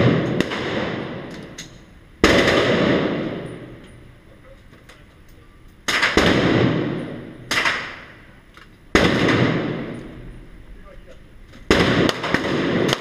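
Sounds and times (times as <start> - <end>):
gunshots with long echo: 0.0 - 1.6, 2.2 - 3.8, 5.8 - 8.3, 8.9 - 10.4, 11.7 - 13.0.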